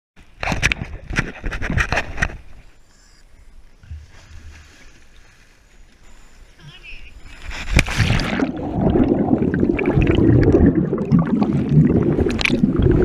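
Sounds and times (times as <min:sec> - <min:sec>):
boat background noise: 0:00.2 - 0:07.8.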